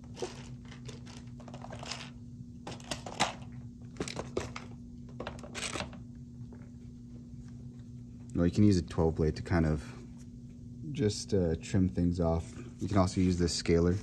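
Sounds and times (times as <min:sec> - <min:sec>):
steady low hum: 0:00.0 - 0:14.0
small objects clicking and rustling: 0:00.1 - 0:03.4.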